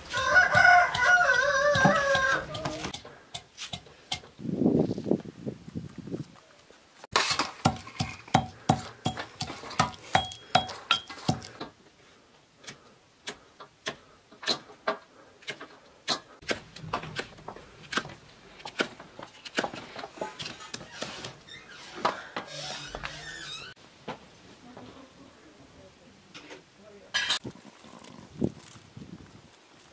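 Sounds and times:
knife chopping on wood: 0.8s - 4.2s, 7.6s - 11.5s.

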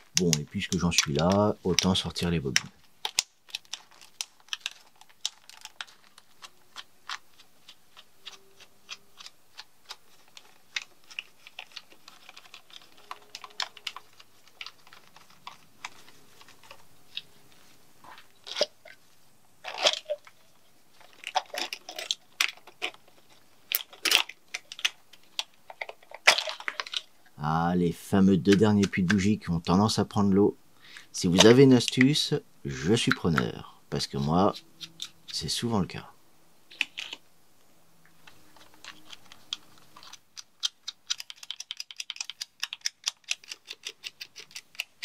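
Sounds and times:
plastic connectors clicking: 0.0s - 17.3s, 38.2s - 45.0s.

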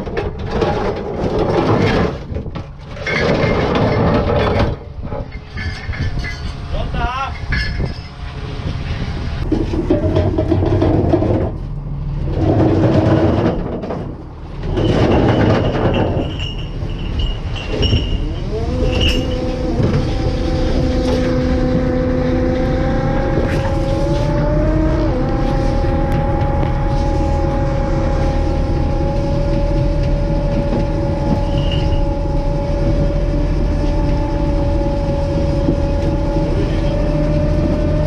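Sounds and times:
boat engine rumbling: 0.0s - 38.0s.

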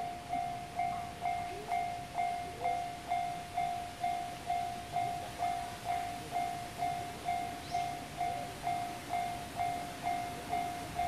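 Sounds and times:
level crossing warning bell: 0.0s - 11.0s.

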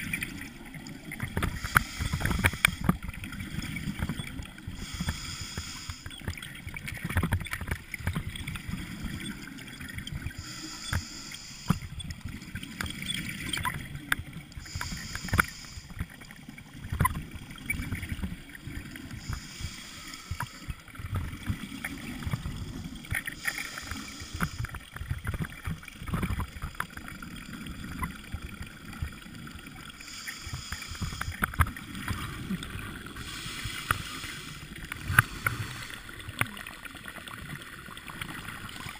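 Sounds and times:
short hiss: 4.8s - 6.1s, 14.6s - 15.9s.

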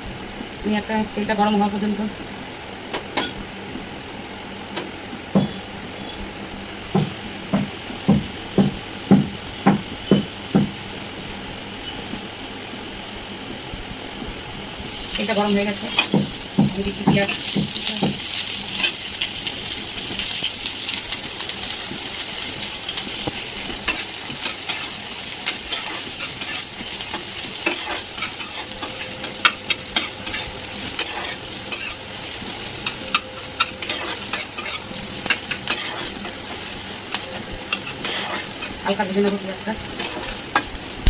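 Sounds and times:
onion sizzling in oil: 14.6s - 41.0s
spatula scraping a pan: 23.9s - 32.0s, 32.8s - 36.7s, 37.7s - 38.8s.

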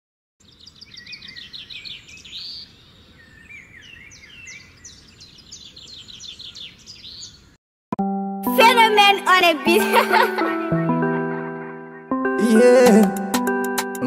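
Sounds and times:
birds chirping and singing: 0.4s - 7.6s, 9.8s - 13.2s.

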